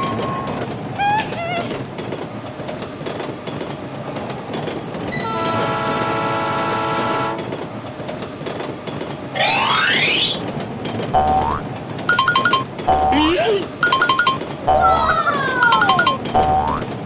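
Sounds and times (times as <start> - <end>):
train rumbling on rails: 0.0 - 17.0
train horn: 5.2 - 7.4.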